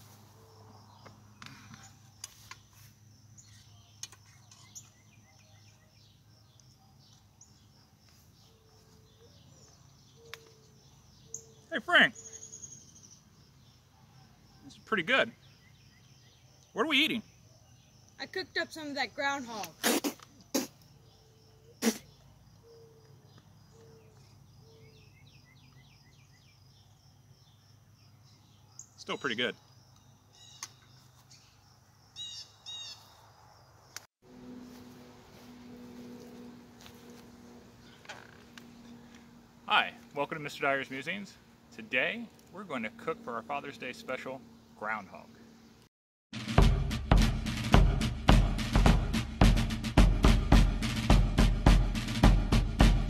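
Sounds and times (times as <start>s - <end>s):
high insect trill: 0.0s - 23.8s
birds chirping: 0.0s - 34.0s, 34.8s - 45.9s.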